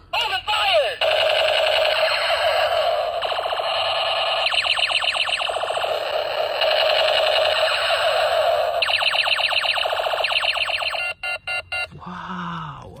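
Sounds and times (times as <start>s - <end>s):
fast laser chirps: 1.0s - 11.1s
toy gun warbling siren tone: 1.0s - 11.2s.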